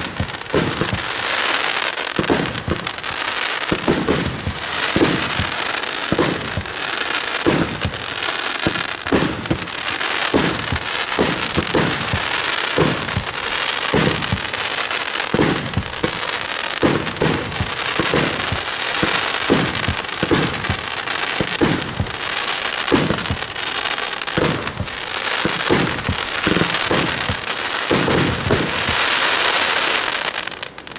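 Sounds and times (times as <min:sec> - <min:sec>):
firework hissing: 0:00.0 - 0:30.9
firework launch reports: 0:00.0 - 0:30.9.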